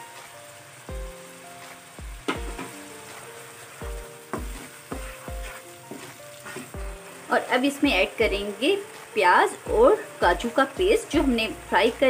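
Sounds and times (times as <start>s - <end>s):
food sizzling in hot oil: 0.0s - 12.0s
background music with low beat: 0.9s - 3.2s, 3.8s - 7.1s
wooden spoon stirring: 3.5s - 6.8s.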